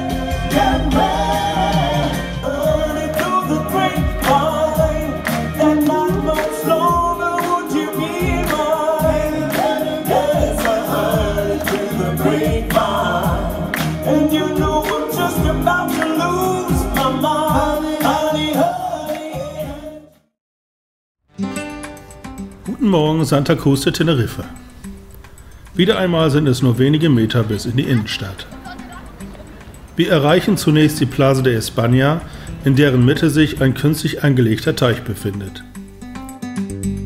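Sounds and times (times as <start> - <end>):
band with steady drum beat: 0.0 - 18.2
vocal group singing: 0.0 - 20.2.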